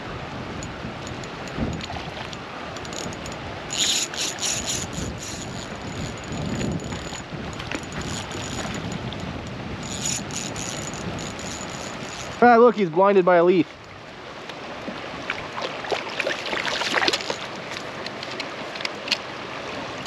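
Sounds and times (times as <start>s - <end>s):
fishing reel clicking: 2.8s - 12.6s, 17.1s - 17.5s.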